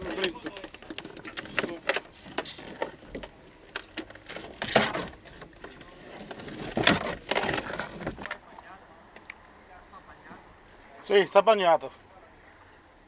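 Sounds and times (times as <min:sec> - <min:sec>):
scraping rustle: 0:00.0 - 0:08.4.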